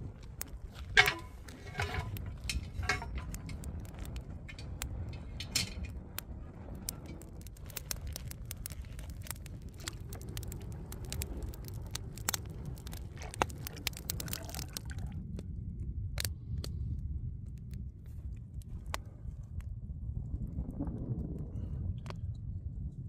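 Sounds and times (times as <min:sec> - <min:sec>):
steady low rumble: 0:00.0 - 0:23.0
sharp clicks and scrapes: 0:00.2 - 0:14.8.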